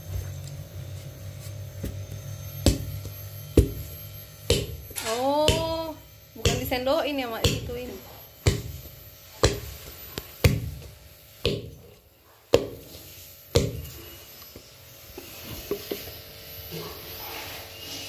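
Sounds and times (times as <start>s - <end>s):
pestle pounding dough: 2.6s - 7.8s, 8.4s - 14.0s.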